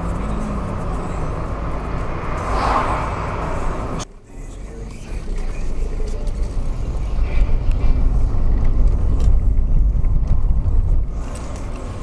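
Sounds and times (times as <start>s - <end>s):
car engine: 0.0s - 12.0s
tyres rumbling on cobblestones: 4.7s - 12.0s.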